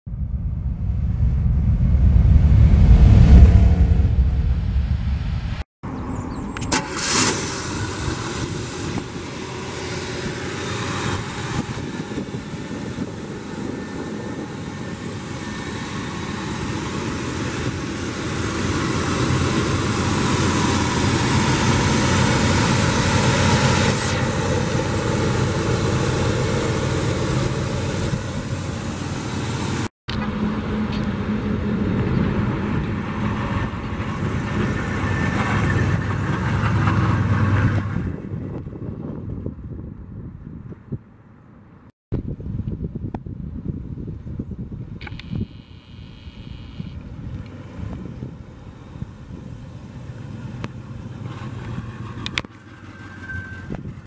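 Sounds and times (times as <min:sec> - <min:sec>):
vee-eight engine running: 0:06.6 - 0:38.7.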